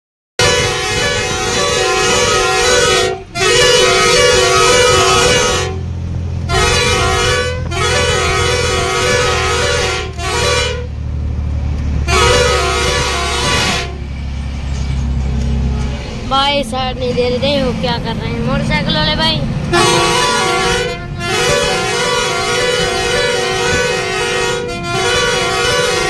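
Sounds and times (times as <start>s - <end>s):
musical truck horn: 0.4s - 11.0s, 12.0s - 14.2s, 19.7s - 26.0s
truck engine droning: 0.4s - 26.0s.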